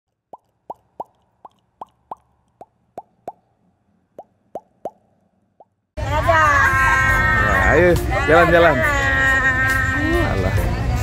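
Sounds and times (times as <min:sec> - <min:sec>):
cartoon bubble popping: 0:00.1 - 0:03.5, 0:04.2 - 0:05.8.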